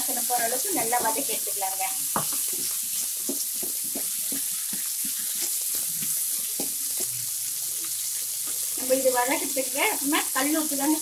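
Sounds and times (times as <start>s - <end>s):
vegetables sizzling in hot oil: 0.0s - 11.0s
wooden spatula scraping a pan: 2.1s - 9.1s.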